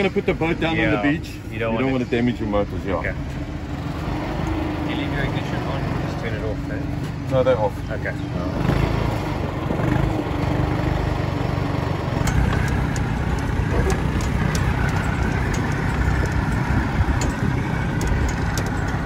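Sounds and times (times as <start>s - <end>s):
tractor engine running: 2.4s - 19.0s
sharp clicks and knocks: 12.2s - 19.0s.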